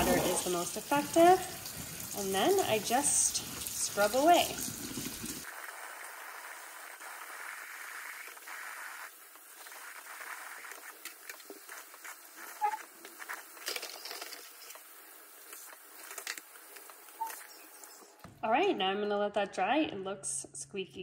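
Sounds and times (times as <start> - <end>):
tap water running into sink: 0.0 - 5.4.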